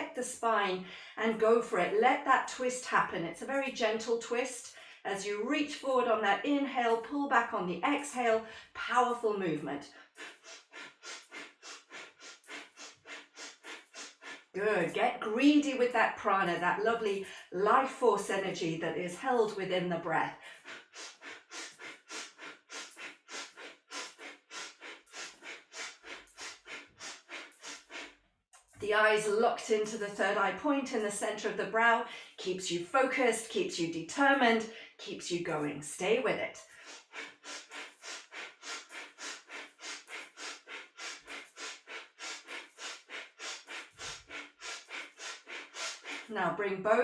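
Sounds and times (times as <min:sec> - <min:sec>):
woman breathing forcefully: 0:00.8 - 0:01.2, 0:04.7 - 0:05.1, 0:08.4 - 0:08.8, 0:09.9 - 0:14.6, 0:20.3 - 0:28.3, 0:32.1 - 0:32.4, 0:34.7 - 0:35.0, 0:36.6 - 0:46.3.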